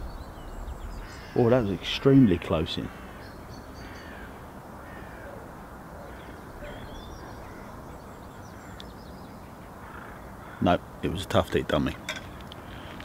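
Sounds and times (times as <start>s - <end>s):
faint bird calls: 0.0s - 10.9s, 12.0s - 13.0s
low background noise: 0.0s - 13.0s.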